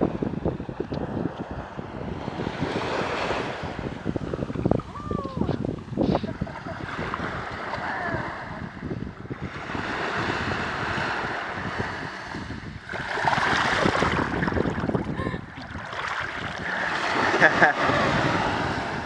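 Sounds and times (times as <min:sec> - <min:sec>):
small waves washing over sand: 0:00.0 - 0:19.0
wind buffeting microphone: 0:00.0 - 0:19.0.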